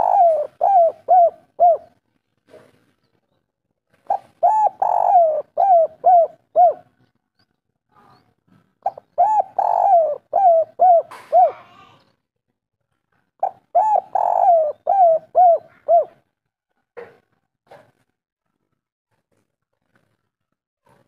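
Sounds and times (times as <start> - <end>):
dove cooing: 0.0 - 2.0, 4.0 - 7.0, 8.8 - 11.9, 13.4 - 16.3.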